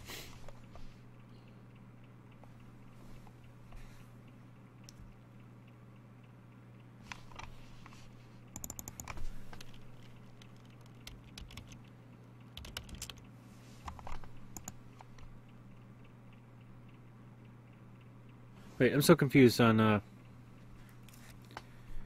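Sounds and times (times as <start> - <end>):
low steady hum: 0.0 - 22.0
typing on keyboard: 8.5 - 11.9, 12.5 - 13.3, 13.9 - 15.3.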